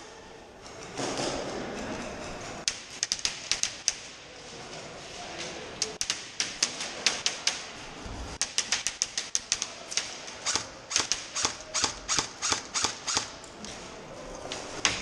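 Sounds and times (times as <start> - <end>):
airsoft gunshots snapping: 8.4 - 13.3.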